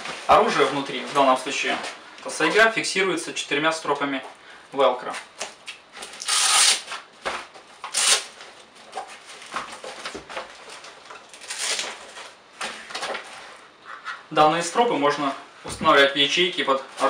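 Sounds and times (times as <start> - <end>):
velcro straps ripping open: 6.2 - 7.0, 7.9 - 8.3, 11.4 - 12.0.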